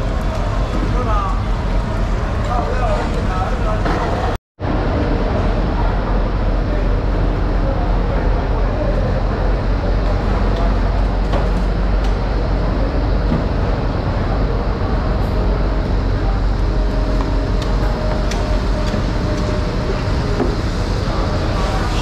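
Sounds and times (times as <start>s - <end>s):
low mechanical rumble: 0.0s - 22.0s.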